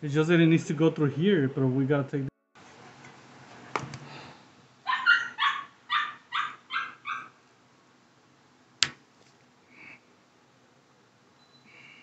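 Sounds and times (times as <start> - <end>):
dog barking: 4.9 - 7.4.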